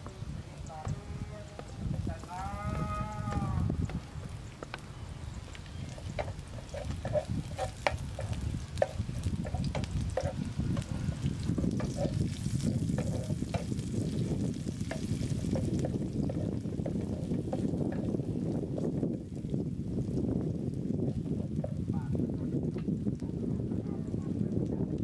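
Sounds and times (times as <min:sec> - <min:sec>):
food sizzling: 0:00.0 - 0:22.2
spatula scraping pan: 0:05.5 - 0:18.3.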